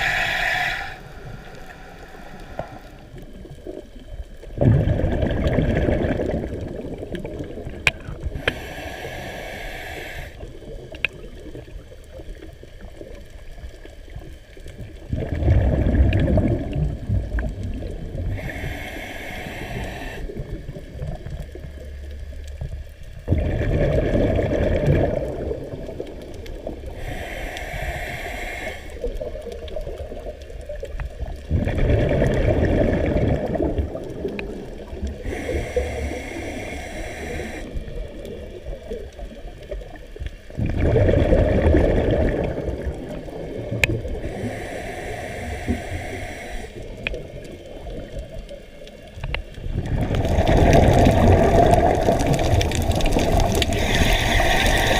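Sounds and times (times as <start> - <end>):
regulator inhale hiss: 0.0 - 3.8, 8.2 - 10.5, 18.1 - 20.8, 26.8 - 29.7, 34.3 - 38.3, 44.1 - 48.4, 51.5 - 54.9
bubbling exhaust: 40.6 - 47.5, 49.7 - 54.9.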